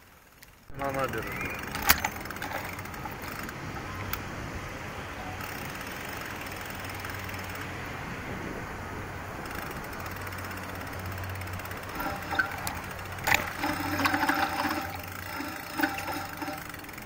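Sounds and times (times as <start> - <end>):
bicycle rolling over paving: 0.0 - 4.4, 9.4 - 17.0.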